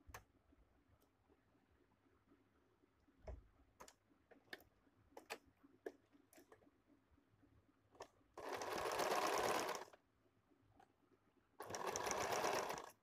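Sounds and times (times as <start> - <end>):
faint clicks and taps: 3.2 - 6.8.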